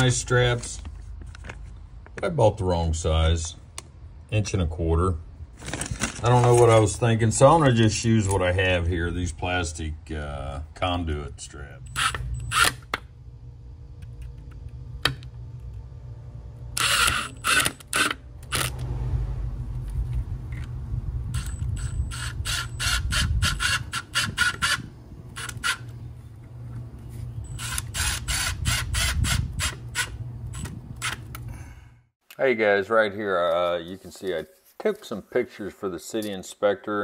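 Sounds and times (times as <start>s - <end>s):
low rumble: 8.8s - 17.6s, 18.2s - 23.7s.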